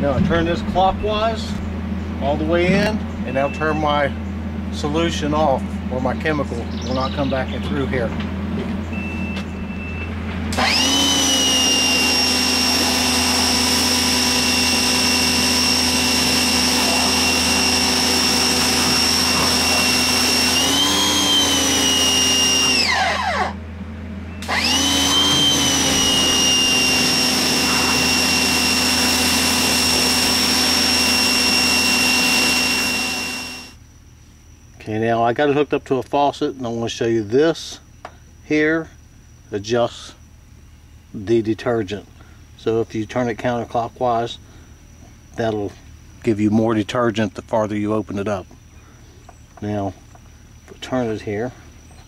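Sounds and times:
pressure washer motor whining: 0.0 - 33.8.

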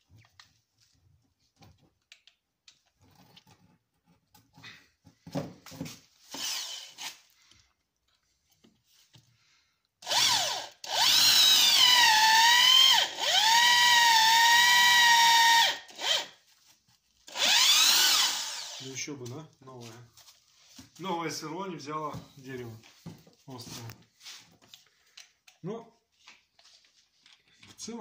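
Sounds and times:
impact drill whining: 6.2 - 7.3, 10.0 - 16.4, 17.3 - 18.9.

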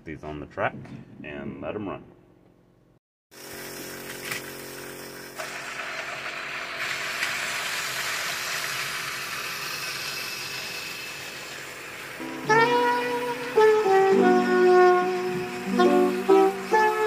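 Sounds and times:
toy train motor whir: 3.4 - 12.2.

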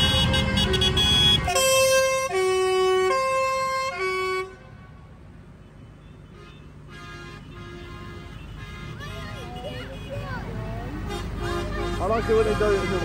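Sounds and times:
tractor engines running: 6.7 - 13.0.

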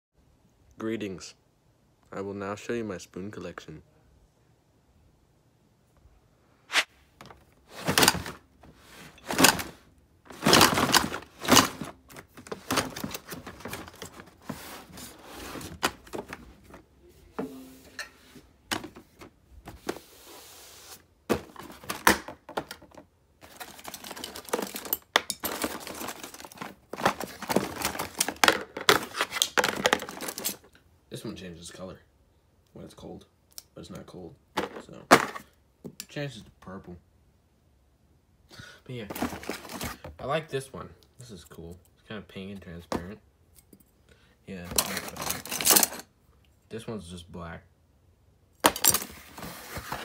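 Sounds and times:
boxes knocking and thudding: 7.2 - 17.7, 21.2 - 30.5, 34.6 - 35.5, 39.1 - 40.1, 48.6 - 50.0
cardboard scraping and rustling: 7.6 - 16.9, 18.7 - 30.6, 39.1 - 40.0, 48.6 - 50.0.

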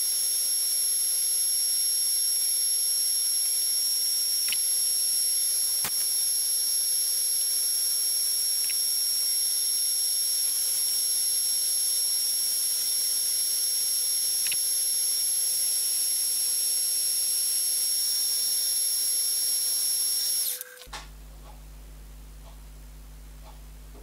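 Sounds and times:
milling machine whine: 0.0 - 20.9
low hum with faint ticks: 20.9 - 24.0.

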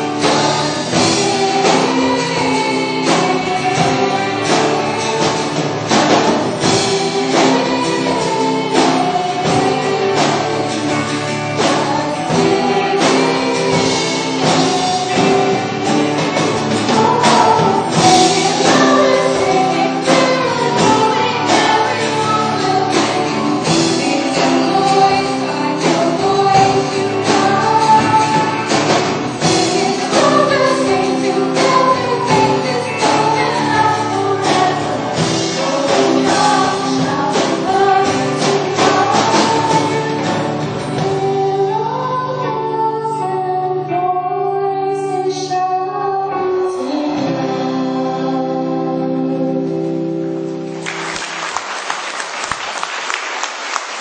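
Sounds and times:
children's choir singing: 0.0 - 54.0
applause: 50.7 - 54.0.

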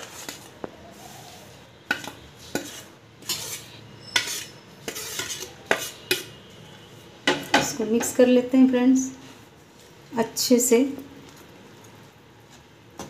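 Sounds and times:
spoon scraping and clinking on plate: 1.9 - 6.4.

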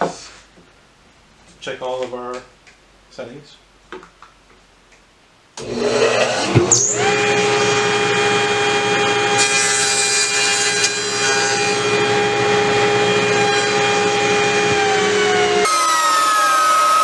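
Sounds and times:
table saw motor whine: 5.6 - 17.0
saw blade cutting wood: 8.8 - 17.0.

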